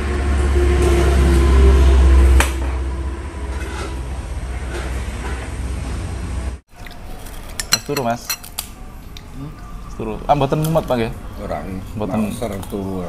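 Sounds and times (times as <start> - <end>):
dishes set down on table: 7.6 - 8.5
glass clinks: 7.6 - 8.5.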